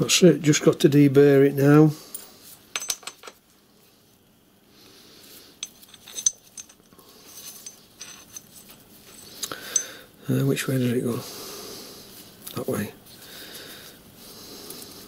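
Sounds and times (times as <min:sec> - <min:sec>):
metal parts clinking: 0:02.8 - 0:03.4, 0:05.6 - 0:10.0.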